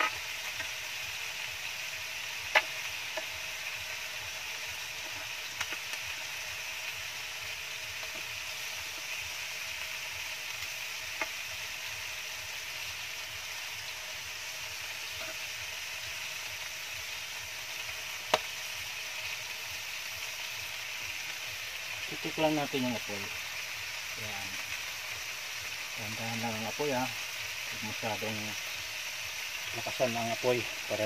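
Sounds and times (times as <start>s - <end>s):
chicken sizzling in a pan: 0.0s - 31.0s
utensil clicking against pan: 2.5s - 3.3s.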